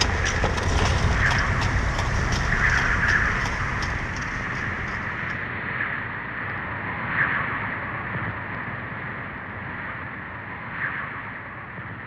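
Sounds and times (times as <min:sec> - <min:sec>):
wind buffeting microphone: 0:00.0 - 0:05.5.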